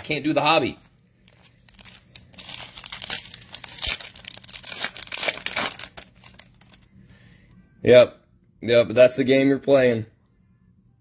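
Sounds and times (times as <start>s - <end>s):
foil card pack crinkling and tearing: 1.2s - 6.9s.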